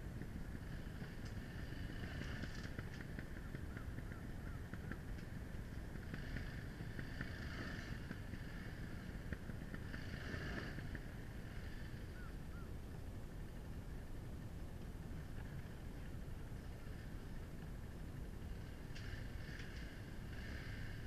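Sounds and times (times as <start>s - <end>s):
faint bird chirps: 12.0s - 12.8s.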